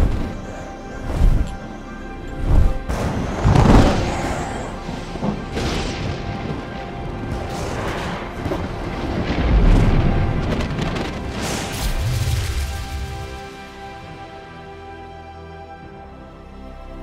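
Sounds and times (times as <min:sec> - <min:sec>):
orchestral film score: 0:00.0 - 0:17.0
thunder rumbling: 0:02.4 - 0:13.6.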